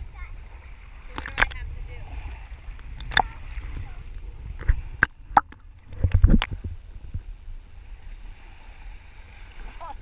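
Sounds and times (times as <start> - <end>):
shallow water sloshing: 0.0 - 10.0
sharp knocks and splashes: 1.0 - 1.6, 2.7 - 4.0, 4.6 - 7.2.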